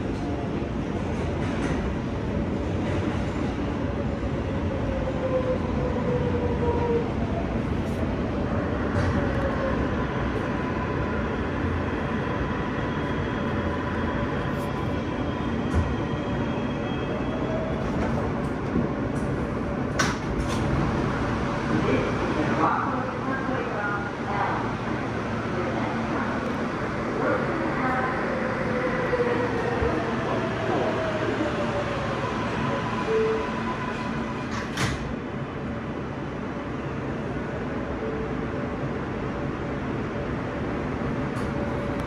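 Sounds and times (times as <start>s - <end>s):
subway train rumbling on track: 0.0s - 42.0s.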